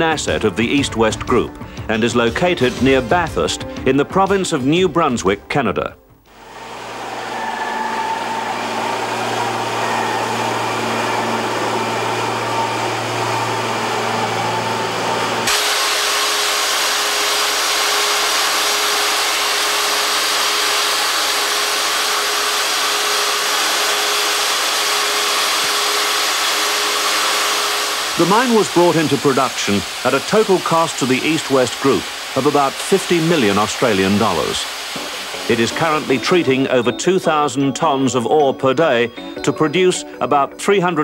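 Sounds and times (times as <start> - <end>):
industrial machinery hum: 6.2 - 36.9
hissing machine noise: 6.3 - 38.0.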